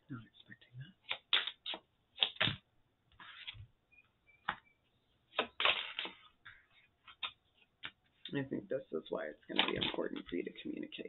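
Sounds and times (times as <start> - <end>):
cards being shuffled: 1.0 - 2.6, 5.3 - 6.3, 7.0 - 8.0, 9.5 - 10.4.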